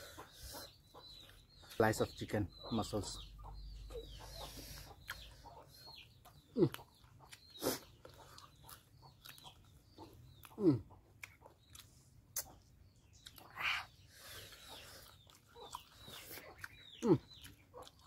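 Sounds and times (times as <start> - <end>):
wet chewing and finger-licking: 3.8 - 18.0.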